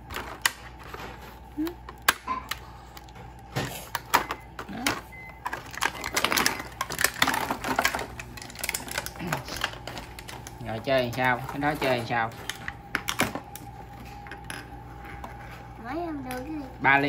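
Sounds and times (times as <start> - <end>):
plastic toy pieces clicking: 5.5 - 10.5.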